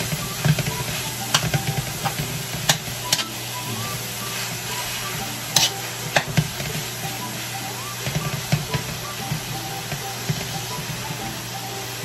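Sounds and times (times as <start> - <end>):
meat sizzling in a wok: 0.0 - 12.0
metal spatula scraping pan: 1.3 - 6.9.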